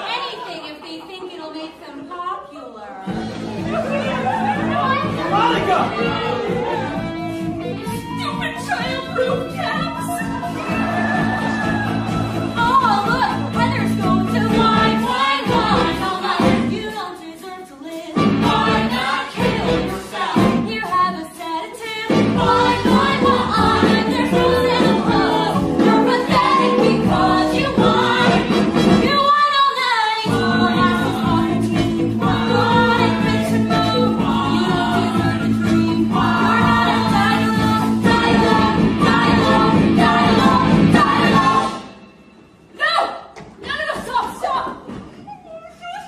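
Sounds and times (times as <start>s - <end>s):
band accompaniment: 3.1s - 16.9s, 18.1s - 21.1s, 22.0s - 29.4s, 30.3s - 42.6s
chorus singing show tune: 3.1s - 43.2s.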